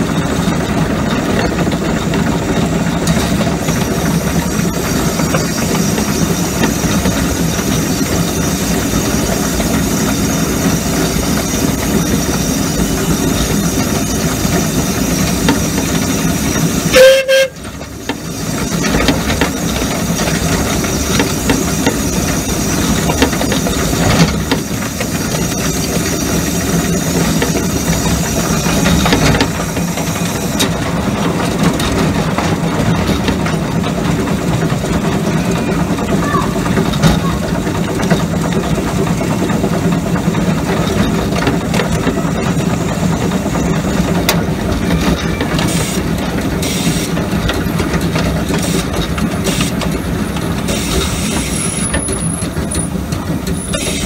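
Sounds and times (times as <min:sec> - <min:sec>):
miniature steam locomotive running: 0:00.0 - 0:54.0
steam whistle blast: 0:16.9 - 0:17.6.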